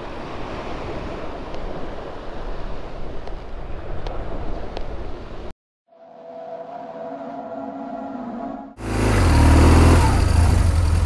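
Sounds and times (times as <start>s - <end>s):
motorcycle engine droning: 8.8s - 11.0s.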